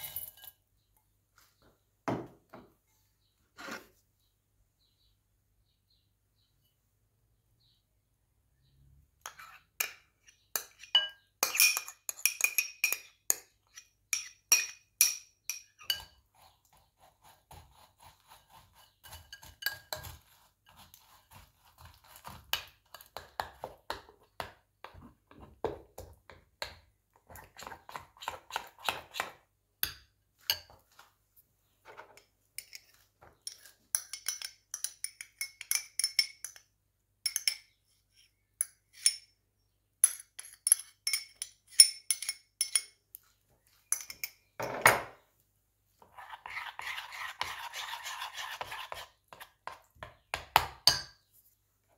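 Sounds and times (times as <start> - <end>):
metal spoon clinking on glass bowl: 0.0 - 0.6, 9.2 - 16.2, 18.8 - 20.2, 32.6 - 37.8, 40.0 - 43.0, 43.9 - 44.4
spoon clinking in ceramic ramekin: 9.3 - 16.5, 18.5 - 20.9, 29.8 - 30.8, 32.6 - 36.7, 37.3 - 37.8, 40.0 - 43.0, 43.9 - 44.5.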